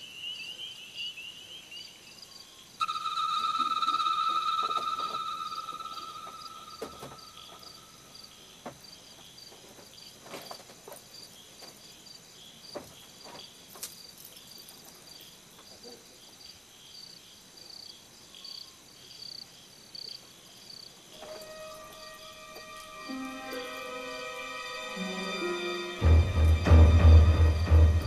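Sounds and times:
crickets chirping: 0:00.0 - 0:28.0
soft knocks and rustles: 0:08.6 - 0:11.8, 0:12.7 - 0:15.0.

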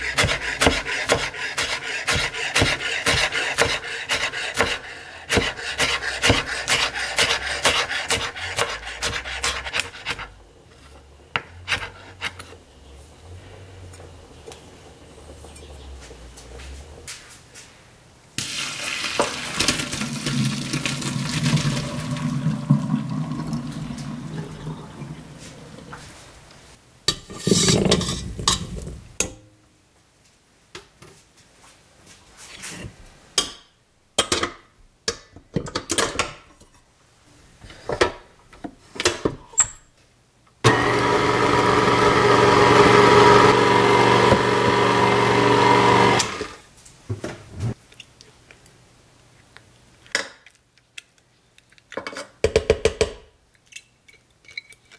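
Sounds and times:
water pouring into strainer: 0:18.4 - 0:25.3
stand mixer running: 0:40.7 - 0:46.6.

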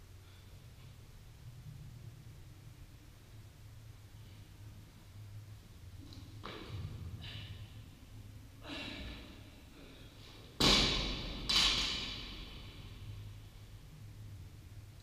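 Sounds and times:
barbell thud on rubber floor: 0:10.6 - 0:12.4.

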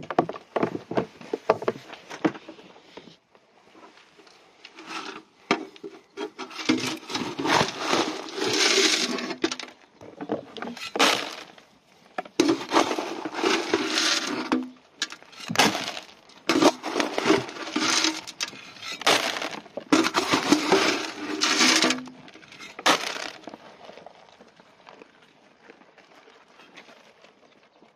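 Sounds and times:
dry feed rattling into tubs: 0:04.7 - 0:11.6, 0:12.2 - 0:23.9.

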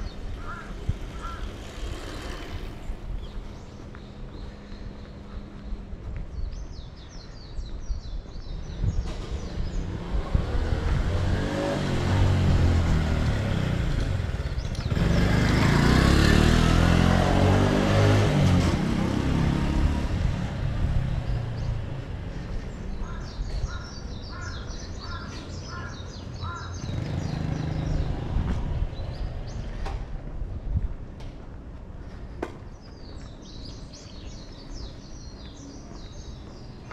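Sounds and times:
road vehicle passing: 0:00.0 - 0:05.9, 0:08.9 - 0:36.9
birds calling: 0:00.0 - 0:10.0, 0:21.3 - 0:29.9.

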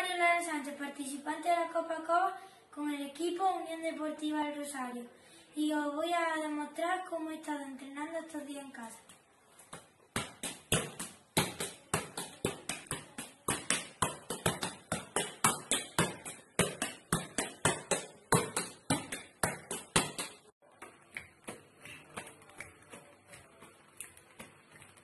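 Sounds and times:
football thuds: 0:09.7 - 0:22.3.

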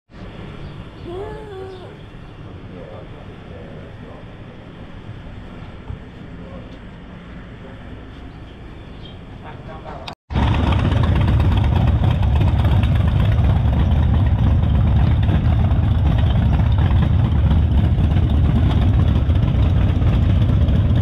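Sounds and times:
motorcycle engine running: 0:10.3 - 0:21.0.

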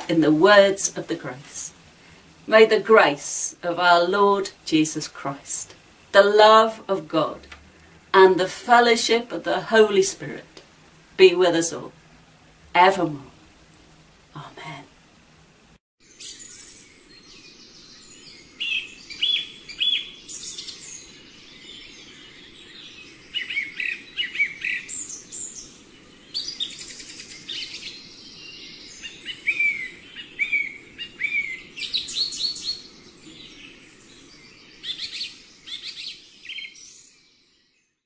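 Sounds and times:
faint background noise: 0:00.0 - 0:38.0
birds chirping and singing: 0:16.1 - 0:37.9.

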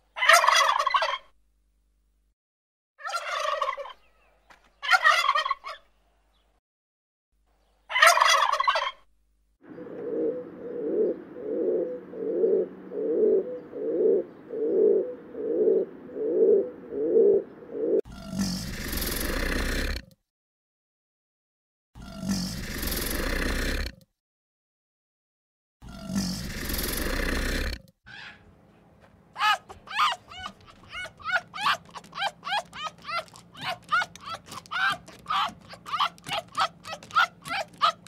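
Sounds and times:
pulsing animal calls: 0:09.8 - 0:18.0, 0:29.4 - 0:38.0
animal calls: 0:28.1 - 0:28.5, 0:29.4 - 0:38.0.

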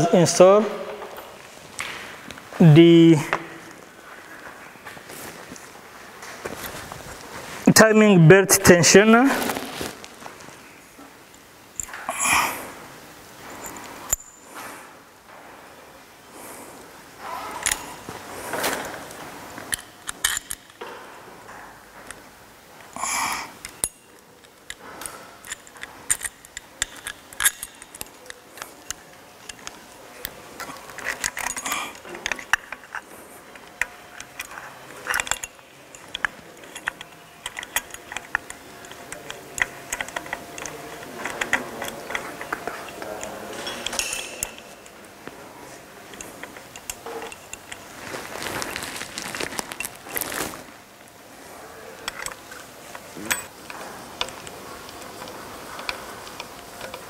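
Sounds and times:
metal parts clicking: 0:19.7 - 0:20.8, 0:23.6 - 0:45.0, 0:46.0 - 0:50.5, 0:52.0 - 0:57.0.

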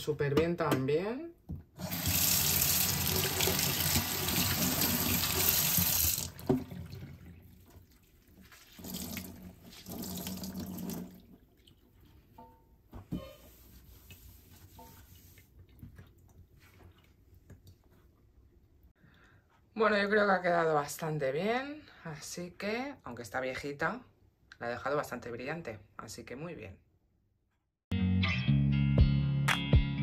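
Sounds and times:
water splashing: 0:01.9 - 0:12.2
small knocks and drips: 0:06.4 - 0:13.2, 0:14.1 - 0:18.1.

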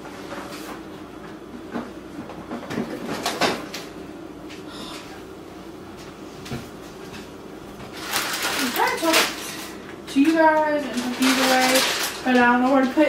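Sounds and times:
packaging rustling: 0:07.9 - 0:09.7, 0:10.8 - 0:13.0.

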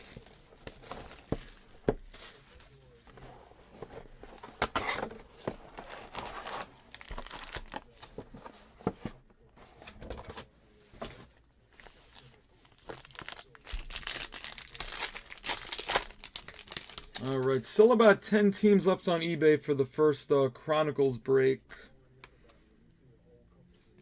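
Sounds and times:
foil packs crinkling and tearing: 0:05.8 - 0:08.0, 0:12.7 - 0:17.5.

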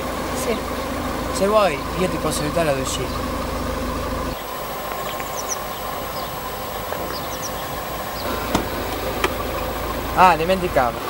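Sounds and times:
car engine humming inside cabin: 0:00.0 - 0:11.0
car passing on road: 0:00.0 - 0:11.0
faint high chirps: 0:04.4 - 0:08.5.

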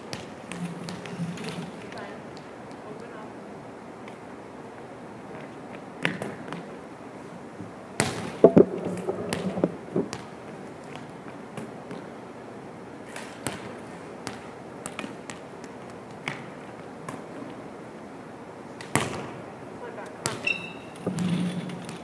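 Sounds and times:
volleyballs slapping and bouncing: 0:00.0 - 0:03.0, 0:05.4 - 0:06.8, 0:08.0 - 0:12.2, 0:13.2 - 0:17.6, 0:18.8 - 0:19.4
shoe squeak on gym floor: 0:20.4 - 0:21.8.

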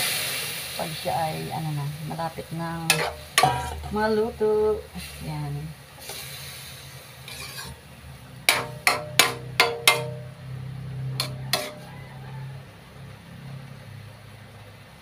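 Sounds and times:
low steady hum: 0:00.8 - 0:11.9
metal spatula tapping wok rim: 0:02.9 - 0:04.0, 0:08.5 - 0:10.4, 0:11.2 - 0:11.9.

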